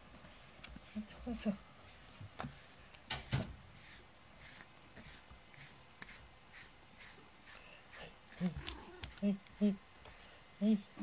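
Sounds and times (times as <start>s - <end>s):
brush stroking fur: 0.2s - 9.8s.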